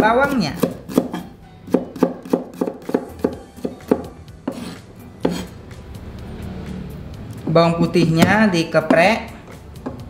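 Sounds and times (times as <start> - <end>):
knife chopping on wooden board: 0.0 - 5.5.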